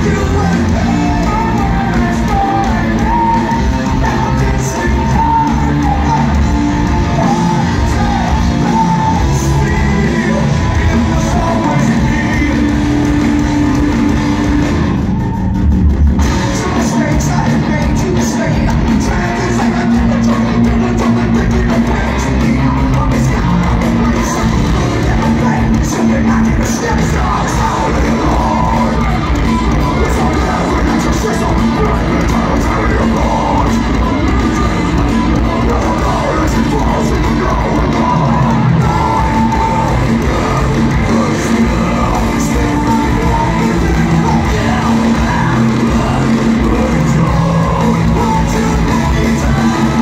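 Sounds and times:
person singing: 0:00.0 - 0:14.9, 0:16.2 - 0:50.0
rock band playing live: 0:00.0 - 0:50.0.

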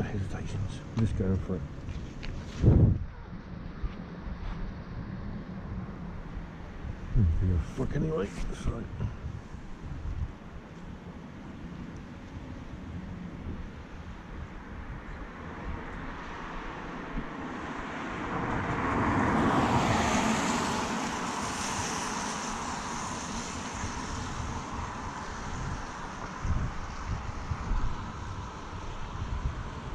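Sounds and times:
vehicle passing by: 0:16.1 - 0:29.9.

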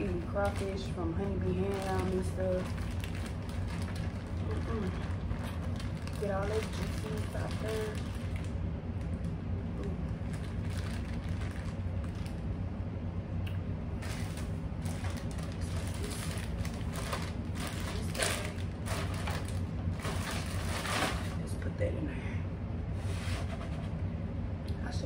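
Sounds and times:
plastic bags crinkling: 0:00.0 - 0:09.3, 0:10.0 - 0:12.5, 0:14.0 - 0:21.5
air conditioner and fan hum: 0:00.0 - 0:25.0.

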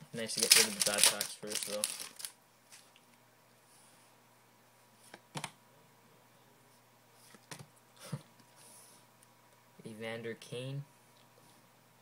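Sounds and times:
cards being flipped: 0:00.4 - 0:02.8.

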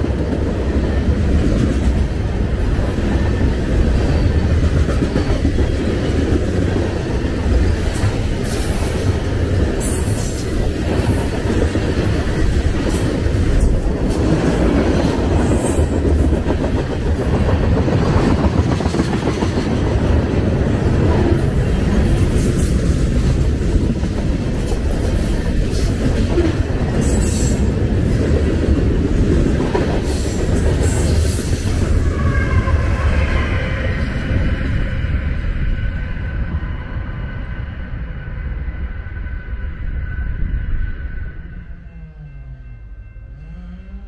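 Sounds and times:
freight train rumbling past: 0:00.0 - 0:44.0
steel wheels clattering on rails: 0:02.7 - 0:32.3.

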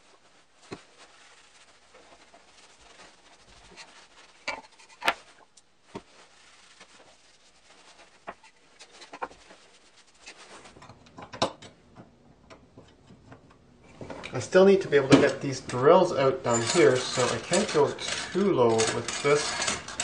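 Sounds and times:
cloth rag wiping wood: 0:00.0 - 0:10.8.

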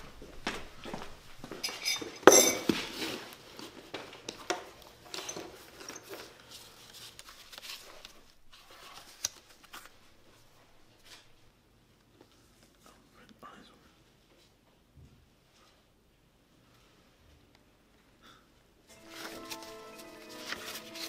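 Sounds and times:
paper pages rustling: 0:06.2 - 0:11.4, 0:18.9 - 0:21.0.

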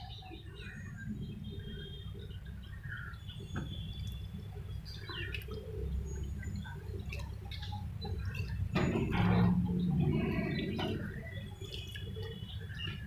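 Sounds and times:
small birds chirping: 0:00.0 - 0:13.0
wet sloshing in bowl of water: 0:03.7 - 0:13.0.

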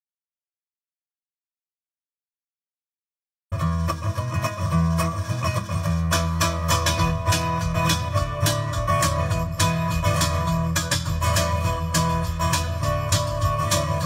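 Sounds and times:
strummed acoustic guitar: 0:03.5 - 0:14.0
fiddle: 0:03.6 - 0:14.0
sharp percussive hits: 0:06.0 - 0:14.0.

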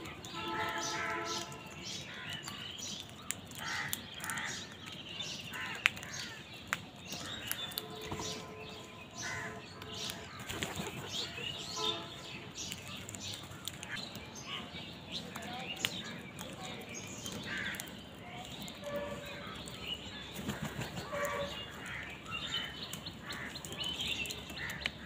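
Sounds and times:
small birds chirping: 0:00.0 - 0:25.0
crows cawing: 0:03.5 - 0:04.8, 0:05.5 - 0:06.4, 0:09.2 - 0:10.5, 0:17.4 - 0:17.9, 0:20.4 - 0:23.7, 0:24.5 - 0:25.0.

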